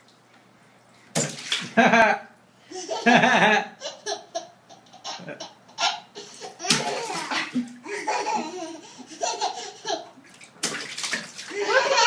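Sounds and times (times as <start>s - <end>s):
toddler laughing: 2.7s - 10.2s, 11.5s - 12.0s.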